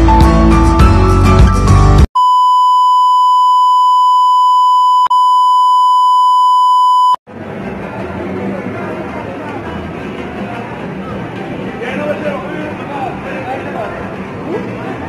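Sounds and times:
background music: 0.0 - 2.1
high-pitched electronic beep tone: 2.2 - 7.2.

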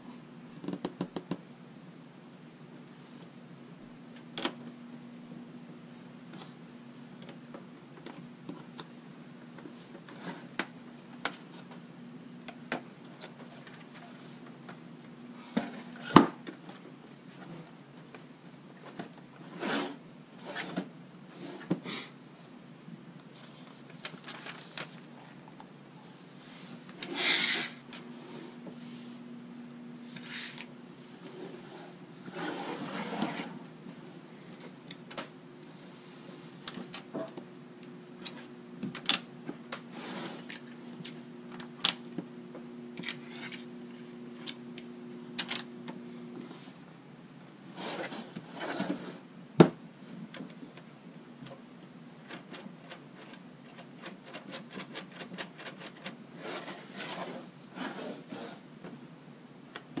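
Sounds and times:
steady low hum: 0.0 - 60.0.

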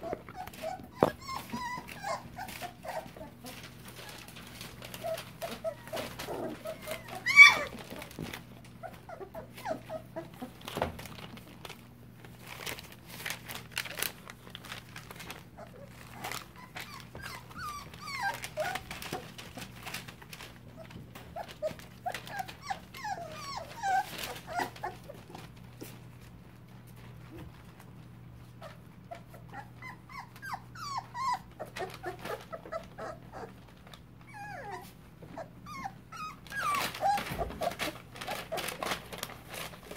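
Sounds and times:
puppies whimpering and squeaking: 0.0 - 10.8, 15.0 - 25.6, 28.5 - 39.9
clicks and rustles: 10.4 - 27.9, 36.5 - 39.9.

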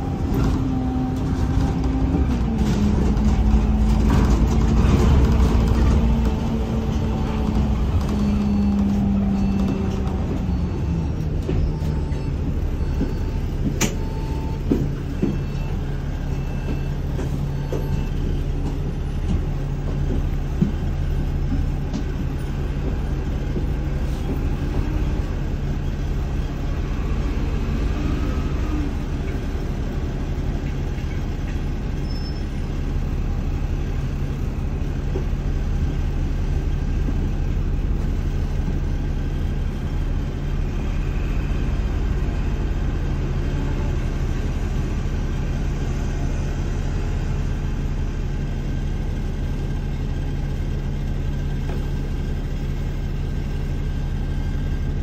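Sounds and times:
bus cabin hum: 0.0 - 55.0.

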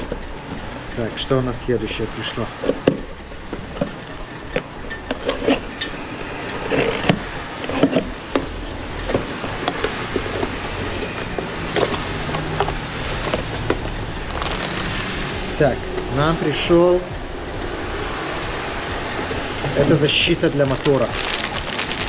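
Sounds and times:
packaging rustling: 6.6 - 15.2, 19.1 - 22.0.

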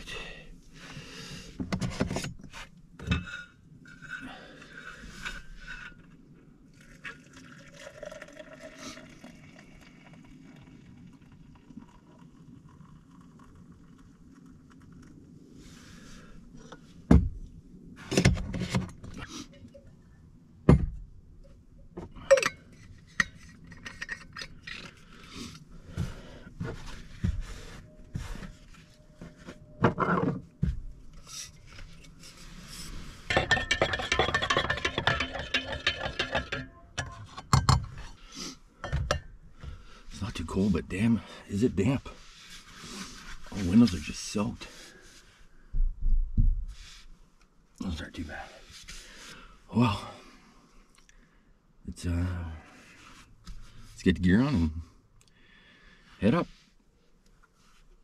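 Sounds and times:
objects knocking and clinking: 33.3 - 38.0.

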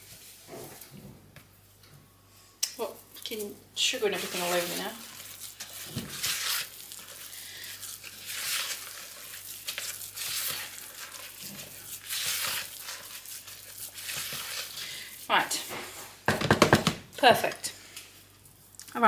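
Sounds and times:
spatula scraping mixing bowl: 3.3 - 16.1.

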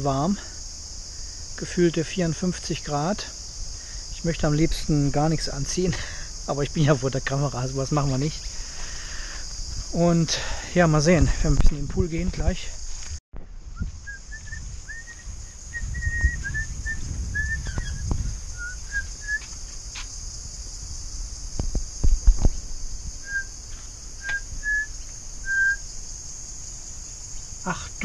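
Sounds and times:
insects droning: 0.0 - 28.0
bird chirping: 14.4 - 19.5.

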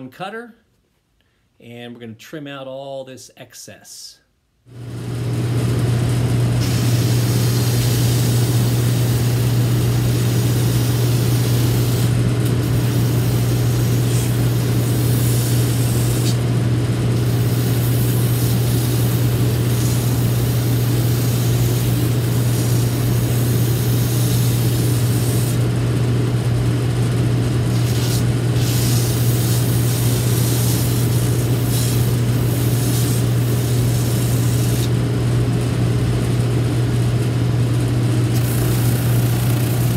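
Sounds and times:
machine motor hum: 4.8 - 39.9
rasp of cutting and sanding: 27.7 - 34.9, 38.4 - 39.9.

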